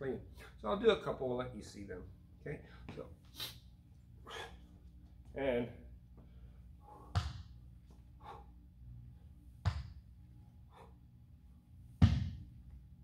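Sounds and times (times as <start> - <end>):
faint breaths: 4.2 - 5.0, 6.1 - 9.5, 10.4 - 11.3.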